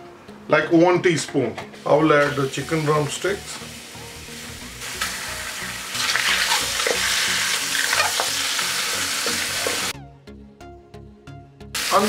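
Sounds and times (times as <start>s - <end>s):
chicken sizzling in oil: 1.8s - 10.0s, 11.8s - 12.0s.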